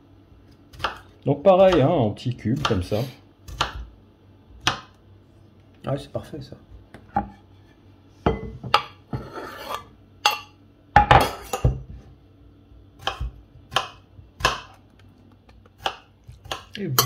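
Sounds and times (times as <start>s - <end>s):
knife chopping on board: 0.7s - 3.9s, 4.6s - 5.0s, 13.0s - 14.8s, 15.8s - 17.0s
knife scraping cutting board: 9.1s - 9.9s.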